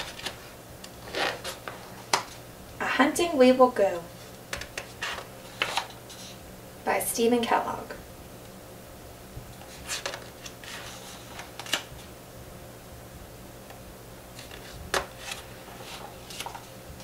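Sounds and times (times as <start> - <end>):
book pages rustling: 0.0 - 2.4, 4.2 - 6.4, 9.6 - 12.1, 14.4 - 16.8
low steady hum: 0.0 - 17.0.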